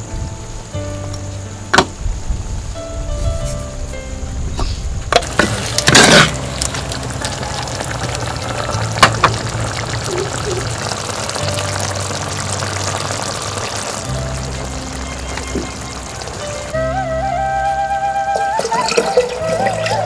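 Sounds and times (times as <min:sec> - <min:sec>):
curry bubbling and sizzling: 0:05.1 - 0:16.8.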